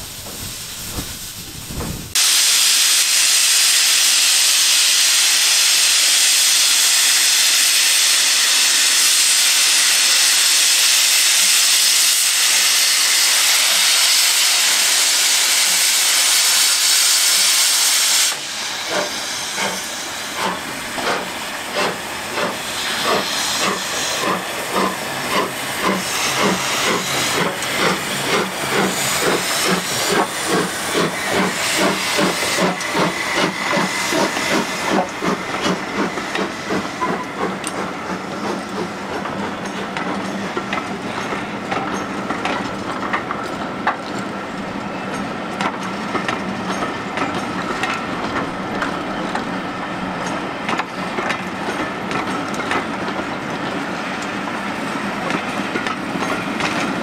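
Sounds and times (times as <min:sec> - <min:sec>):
steam locomotive exhaust beats: 0:00.0 - 0:57.0
steam locomotive hissing steam: 0:00.0 - 0:57.0.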